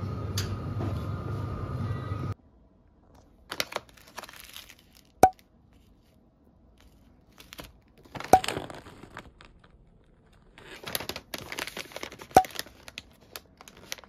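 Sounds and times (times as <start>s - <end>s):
plastic wrappers crinkling: 3.2s - 6.1s, 6.8s - 14.0s.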